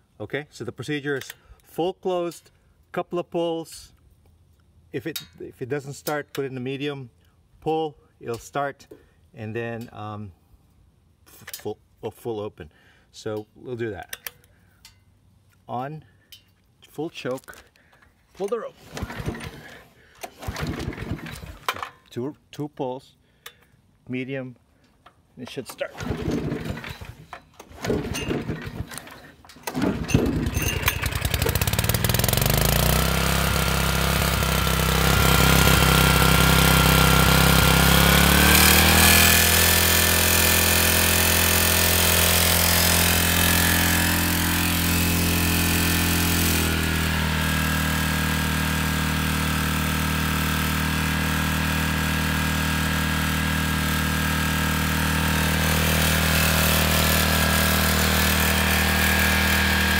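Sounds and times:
starter rope pulls: 17.2 - 21.9, 25.4 - 59.9
generator engine running: 18.8 - 21.7, 26.0 - 59.9.

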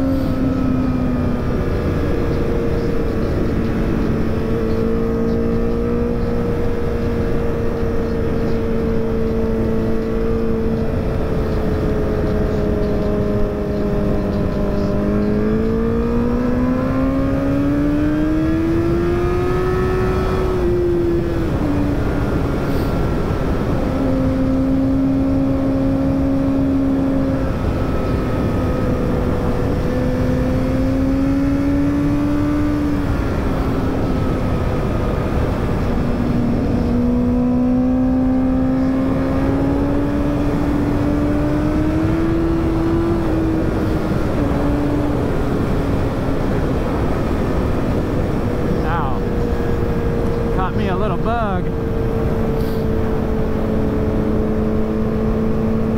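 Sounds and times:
motorcycle engine accelerating: 0.0 - 55.9
heavy wind rush: 38.8 - 55.9.

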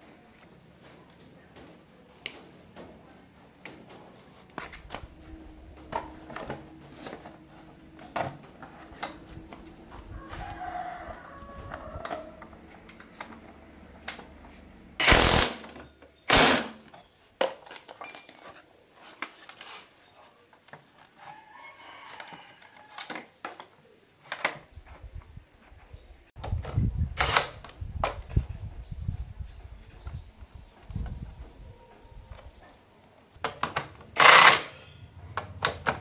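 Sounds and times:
impact driver bursts: 15.0 - 15.7
metal parts clicking and knocking: 17.4 - 18.7.

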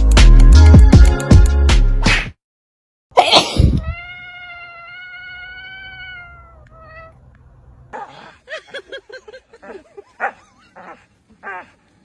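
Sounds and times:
cat meowing: 3.8 - 7.2.

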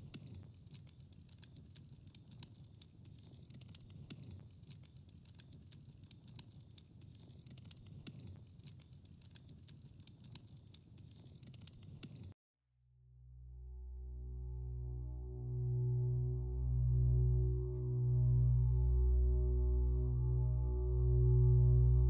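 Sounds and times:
fire crackling: 0.0 - 12.4
low rumble: 13.1 - 22.0.

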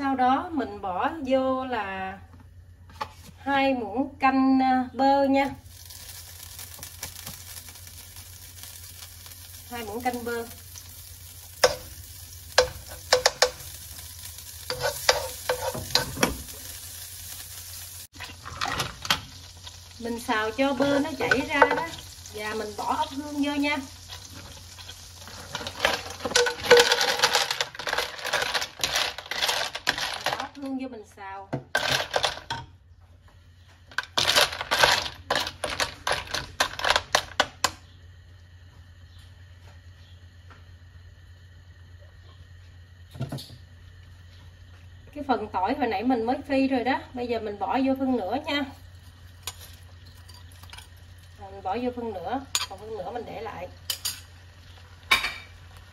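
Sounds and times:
butter sizzling in oil: 5.3 - 29.9, 42.4 - 55.9
snail shells clattering in a wok: 5.6 - 30.8, 31.7 - 32.6, 33.9 - 37.7
metal spoon scraping a pan: 14.6 - 16.5, 52.5 - 52.8.

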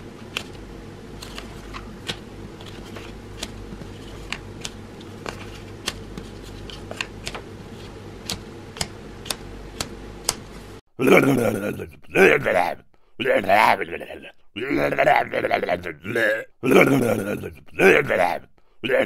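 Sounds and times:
steady low hum: 0.0 - 19.0
paper crinkly clicks: 0.2 - 10.6.

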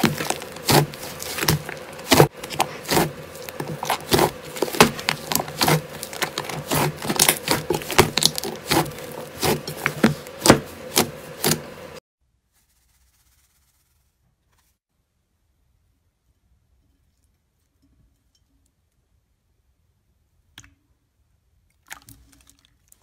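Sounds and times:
slime squeezed by hand: 0.0 - 11.6.

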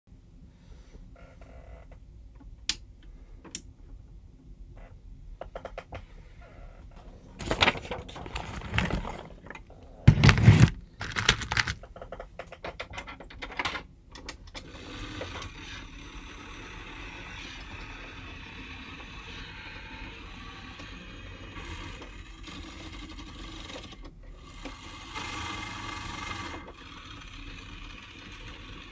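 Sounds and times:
motor whirring: 14.6 - 28.9.

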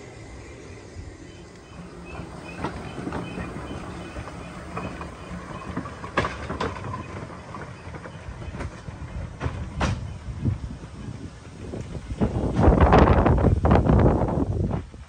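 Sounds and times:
wheels clicking over rails: 0.0 - 14.1
steam locomotive passing: 0.0 - 15.0.

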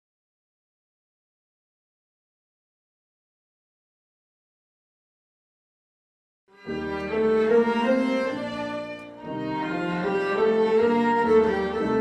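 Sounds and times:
viola cello and piano playing: 6.6 - 12.0.

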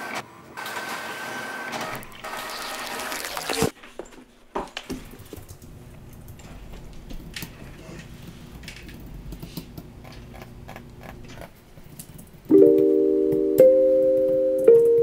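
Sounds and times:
printer whirring: 0.0 - 2.5.

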